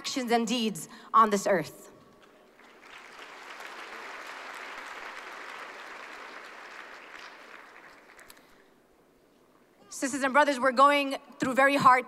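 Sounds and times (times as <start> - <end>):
audience applauding: 2.5 - 8.5.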